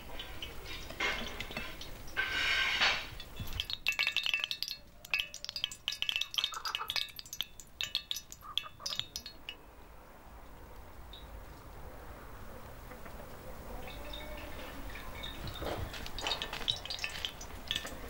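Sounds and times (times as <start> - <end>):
short hiss: 2.2 - 3.2
light chiming clinks: 3.1 - 9.6, 13.8 - 18.0.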